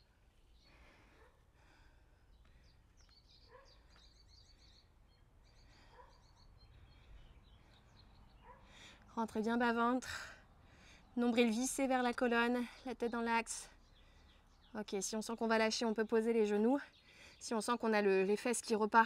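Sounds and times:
faint breathing: 0.6s - 3.1s, 5.4s - 9.2s, 10.1s - 11.2s, 13.8s - 14.6s, 16.9s - 17.4s
faint high bird chirps: 2.3s - 8.6s.

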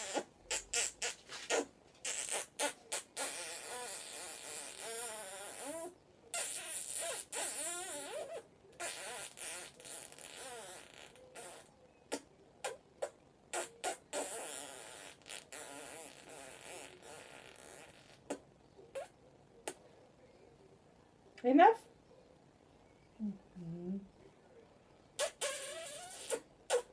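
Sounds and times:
wet kissing smacks: 0.0s - 5.8s, 8.8s - 18.4s, 25.2s - 26.9s
soft wavering murmurs: 22.9s - 24.7s.

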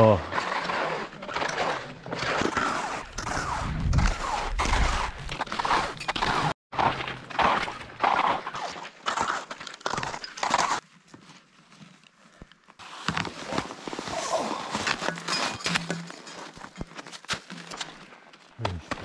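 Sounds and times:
skis crunching over crusty snow: 0.4s - 15.4s.

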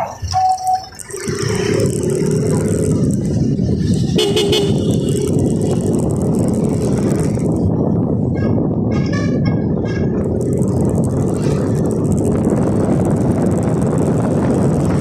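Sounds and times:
road and wind rumble: 0.0s - 15.0s
vehicle horn: 4.1s - 5.0s.

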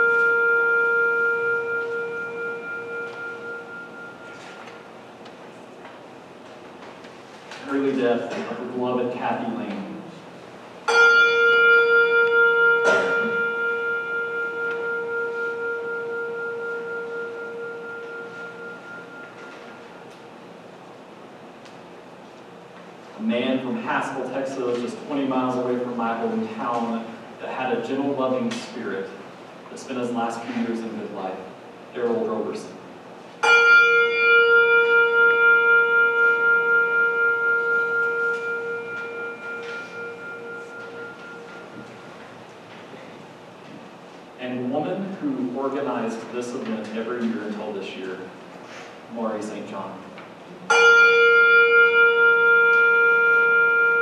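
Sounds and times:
handbell ringing: 0.0s - 4.7s, 10.9s - 20.0s, 33.4s - 42.1s
bell tolling: 0.0s - 5.1s, 10.8s - 20.6s, 33.4s - 42.5s, 50.7s - 54.0s.

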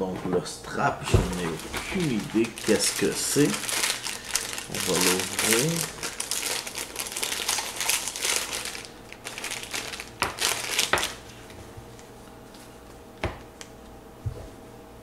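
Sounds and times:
plastic packaging crinkling: 1.0s - 12.0s.

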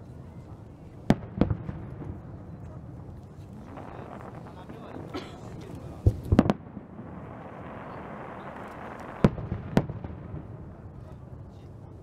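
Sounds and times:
firework shells bursting: 3.2s - 10.6s.

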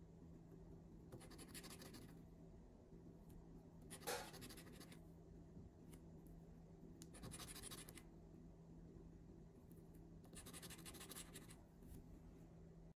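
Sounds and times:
fingernail scratching lottery ticket: 1.2s - 2.1s, 7.2s - 8.0s, 10.3s - 11.6s.

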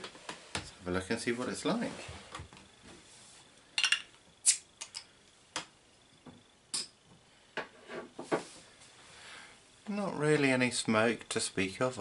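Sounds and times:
glass bottle clinking: 3.8s - 4.1s.

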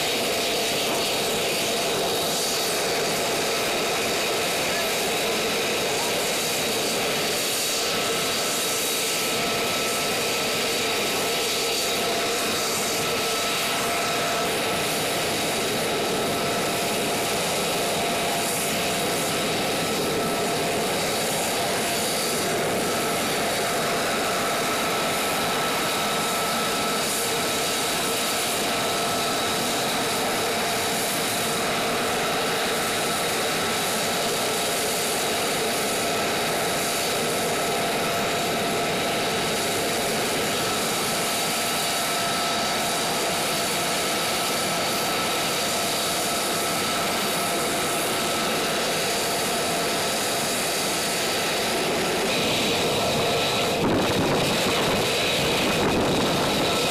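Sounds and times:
jet engine idling: 0.0s - 56.9s.

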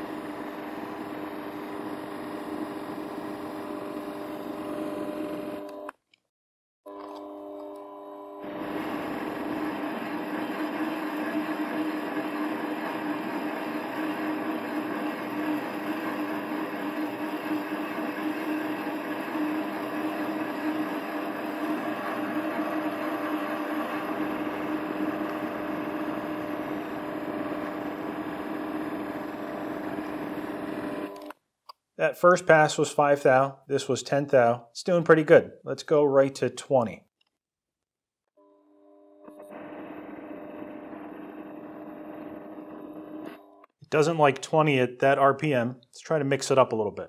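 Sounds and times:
lathe motor whine: 0.0s - 5.9s, 6.9s - 31.3s, 38.4s - 43.6s.

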